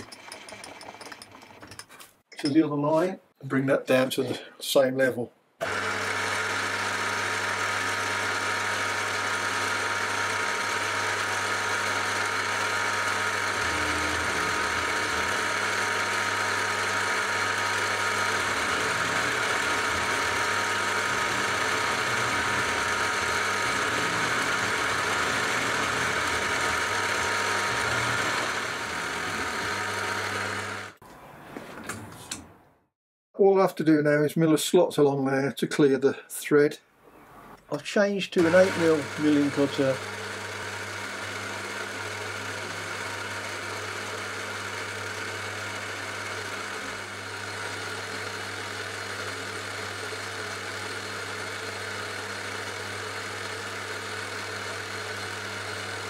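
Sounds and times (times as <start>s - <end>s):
milling machine cutting metal: 5.6s - 31.0s, 38.4s - 56.0s.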